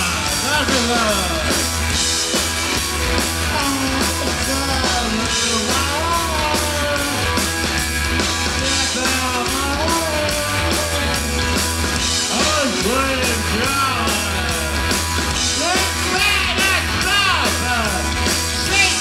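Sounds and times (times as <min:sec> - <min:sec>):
man singing into microphone: 0:00.0 - 0:01.6, 0:03.5 - 0:07.3, 0:08.6 - 0:11.1, 0:12.3 - 0:14.8, 0:15.6 - 0:19.0
rock band playing: 0:00.0 - 0:19.0.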